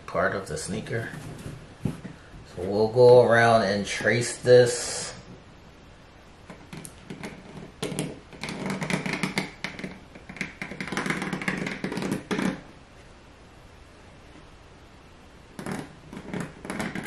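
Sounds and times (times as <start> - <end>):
pen scratching on a sheet: 6.5 - 12.6, 15.6 - 17.0.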